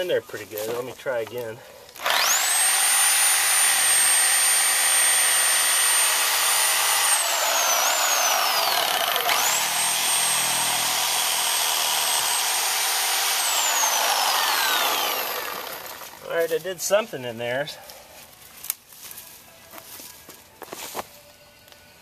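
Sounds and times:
reciprocating saw motor whine: 2.0s - 16.2s.

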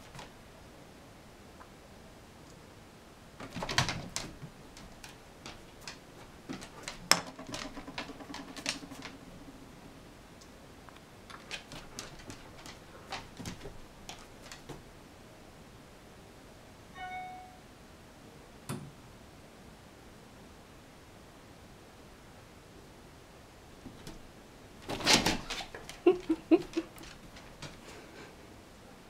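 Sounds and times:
kitten paws tapping on wood: 3.4s - 9.2s, 11.3s - 14.8s, 25.4s - 28.0s.

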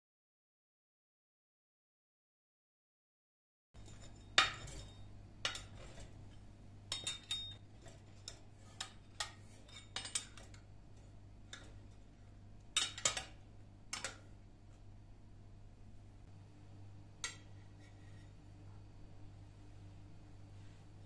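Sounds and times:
metal server clinking on glass dish: 3.8s - 6.1s, 6.9s - 7.6s.

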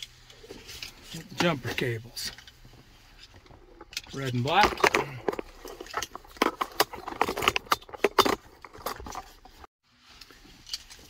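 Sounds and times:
metal clamps clinking and rattling: 2.2s - 9.7s.

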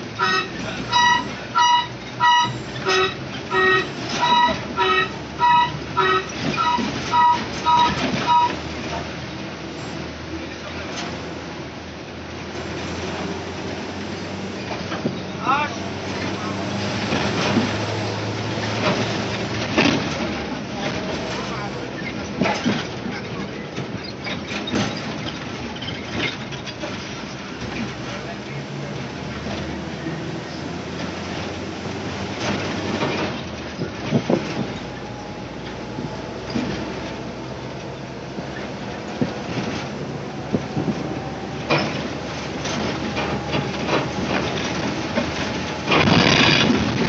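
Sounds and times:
bus engine drone: 0.0s - 47.0s
road noise: 0.0s - 47.0s
short clatters in bus cabin: 0.0s - 47.0s
body rattles and knocks: 32.4s - 35.1s, 37.8s - 47.0s.

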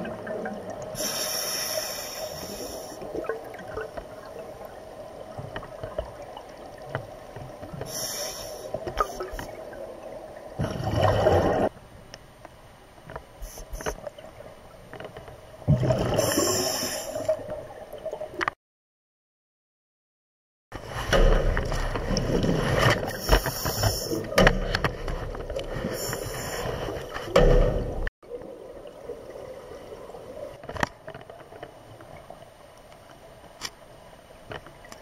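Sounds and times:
exhaled bubbles gurgling: 0.0s - 11.7s, 15.6s - 18.4s
regulator inhale hiss: 1.0s - 3.0s, 7.8s - 8.8s, 16.3s - 17.3s.

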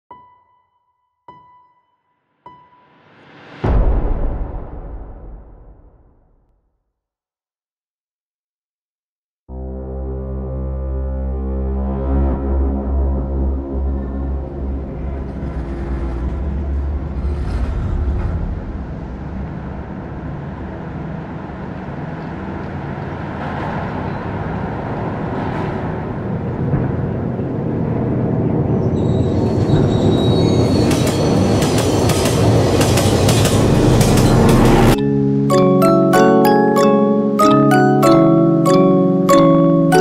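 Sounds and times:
low drone: 9.5s - 39.6s
dense mechanical rumble: 13.1s - 22.9s
metallic grinding and squealing: 14.0s - 19.0s, 29.0s - 35.0s
rapid metallic clanking: 30.8s - 35.0s.

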